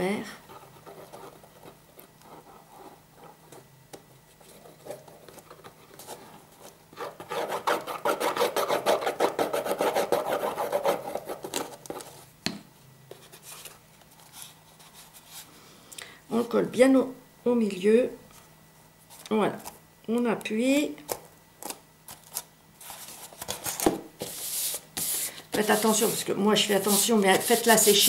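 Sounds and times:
scraping on cardboard: 4.3s - 12.2s, 22.3s - 28.0s.

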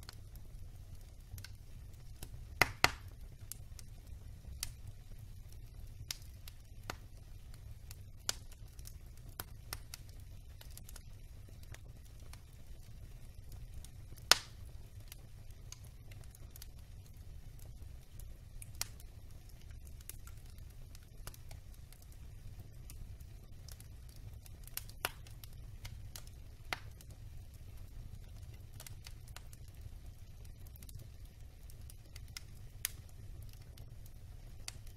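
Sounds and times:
fire crackling: 0.0s - 34.9s
flames rumbling: 0.0s - 34.9s
burning wood popping: 1.0s - 3.9s, 13.5s - 16.7s, 17.6s - 27.2s, 34.6s - 34.9s.

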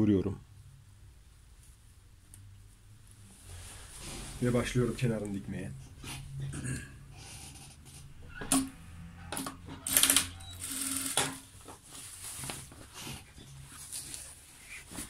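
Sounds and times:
fabric rustling: 3.0s - 5.6s, 11.4s - 15.0s
sewing machine stitching: 9.7s - 11.5s.

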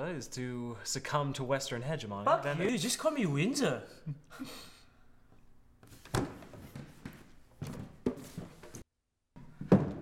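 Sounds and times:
chair knocking and scraping: 5.8s - 10.0s.

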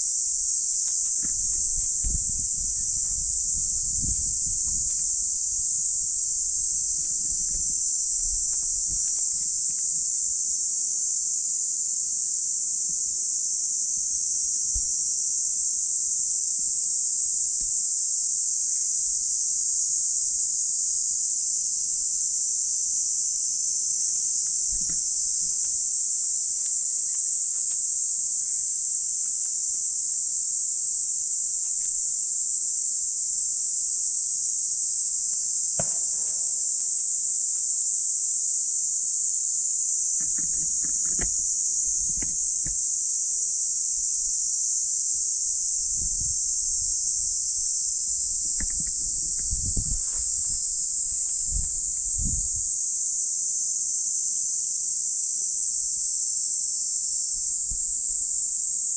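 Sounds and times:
high-pitched insect chorus: 0.0s - 58.9s
faint taps and rustles: 0.8s - 5.1s, 24.4s - 25.8s, 40.2s - 41.4s.

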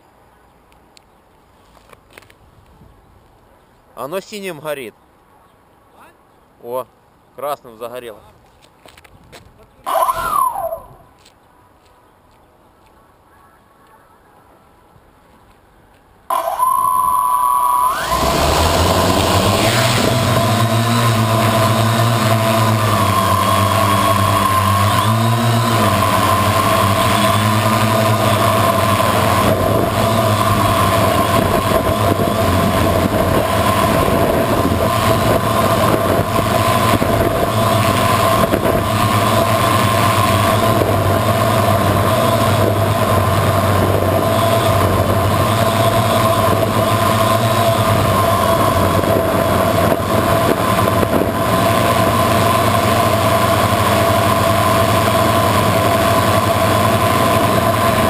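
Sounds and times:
drone propellers whining: 9.9s - 11.1s, 16.3s - 58.0s.

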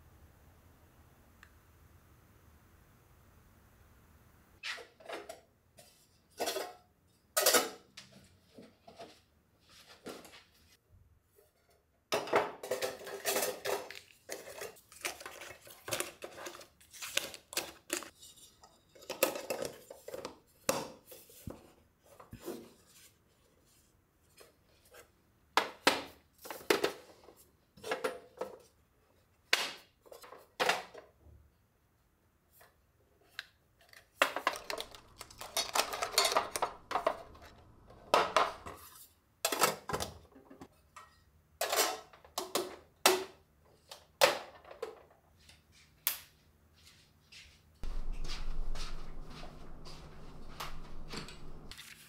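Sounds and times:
tins set down on hard surface: 12.1s - 16.0s, 34.2s - 38.8s
metal tin lids clacking: 34.2s - 38.7s
wrapped sachets rustling: 34.4s - 38.6s.

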